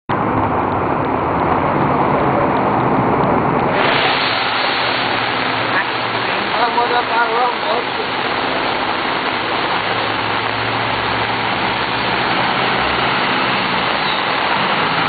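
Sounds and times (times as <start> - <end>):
water rushing from bus wheels: 0.1 - 15.0
bus engine hum: 0.2 - 3.8.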